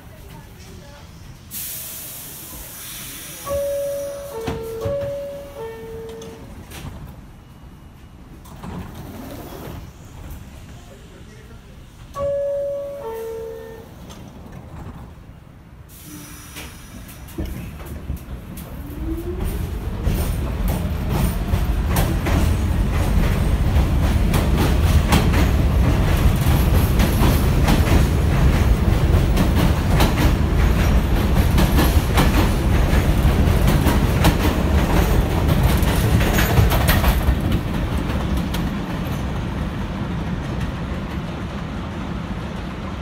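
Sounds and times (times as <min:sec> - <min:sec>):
subway train rumbling past: 0:00.0 - 0:43.0
wheels clicking over rail joints: 0:19.4 - 0:39.6.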